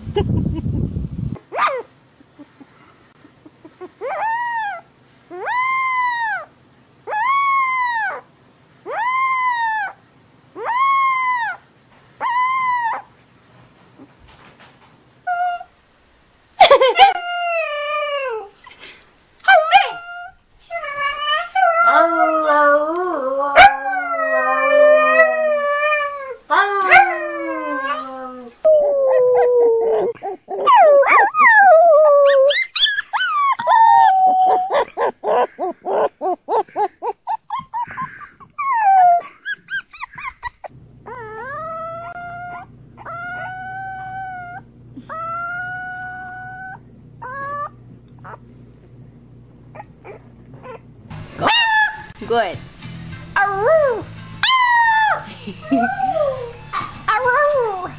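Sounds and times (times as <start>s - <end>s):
puppy whimpering cries: 3.8s - 6.5s, 7.1s - 8.2s, 8.9s - 10.0s, 10.6s - 11.6s, 12.2s - 13.1s, 19.5s - 48.4s, 49.8s - 52.0s
puppies howling: 4.0s - 6.5s, 7.1s - 8.2s, 8.9s - 10.0s, 10.6s - 11.6s, 19.5s - 48.4s
steady low hum: 40.2s - 51.4s.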